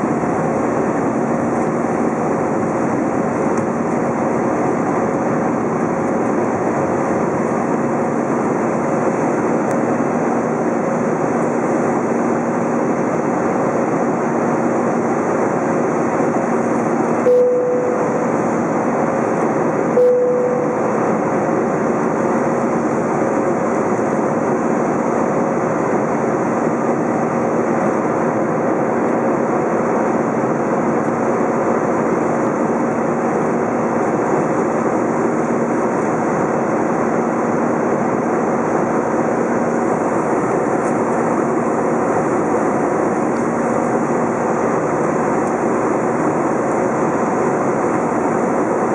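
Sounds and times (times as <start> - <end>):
jet engine and airflow roar: 0.0 - 48.9
steady cabin hums: 7.4 - 48.9
click with short tone: 17.3 - 18.3, 20.0 - 21.0.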